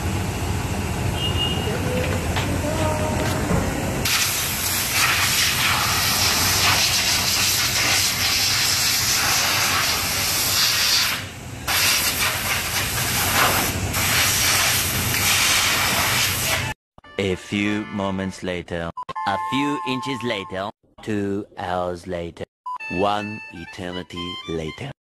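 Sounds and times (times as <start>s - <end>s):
air blow gun hissing: 4.0s - 16.7s.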